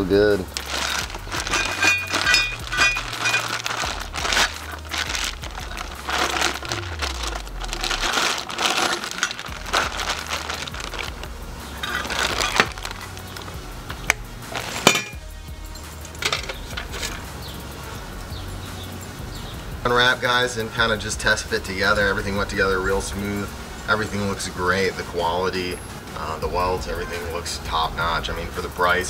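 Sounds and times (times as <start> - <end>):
plastic bags crinkling: 0.0 - 15.2
metal pipes clinking: 0.0 - 17.6
background music with bass line: 0.0 - 29.0.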